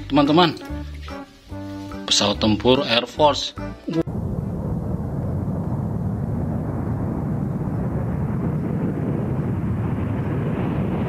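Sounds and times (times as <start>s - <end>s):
jet engines rumbling: 4.1s - 11.0s.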